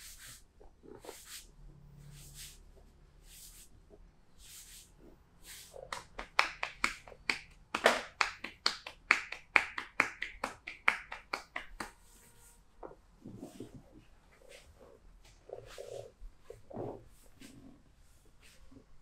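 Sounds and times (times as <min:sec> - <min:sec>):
hands rubbing skin: 0:00.0 - 0:01.5, 0:04.4 - 0:12.6, 0:14.4 - 0:16.6
hands slapping on a back: 0:05.8 - 0:12.1.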